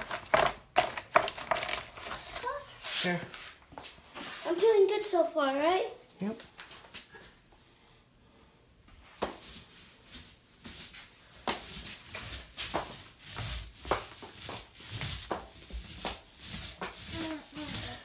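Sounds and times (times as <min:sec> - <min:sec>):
paint roller hissing on wall: 0:02.3 - 0:05.1, 0:09.0 - 0:18.0.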